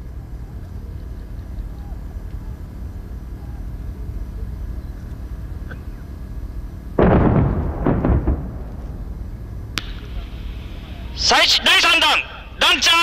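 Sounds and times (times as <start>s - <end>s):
low steady rumble: 0.0s - 13.0s
artillery shell explosions: 7.0s - 11.0s.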